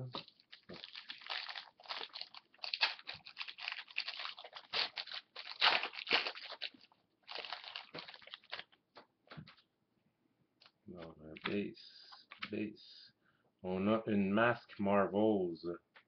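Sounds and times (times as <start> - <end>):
foil wrapper tearing and crinkling: 0.2 - 8.7.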